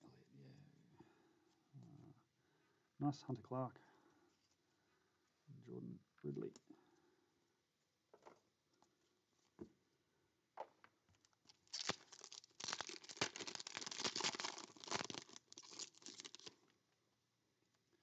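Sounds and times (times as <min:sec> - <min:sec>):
foil pack crinkling and tearing: 0:11.4 - 0:16.6.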